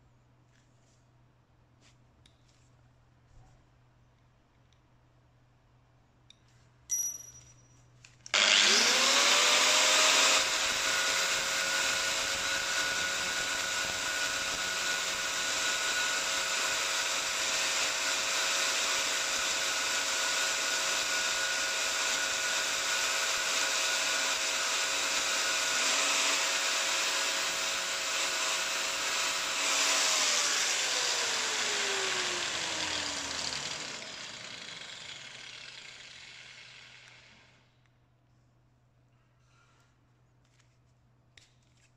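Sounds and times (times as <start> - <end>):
angle grinder grinding steel: 8.3 - 37.5.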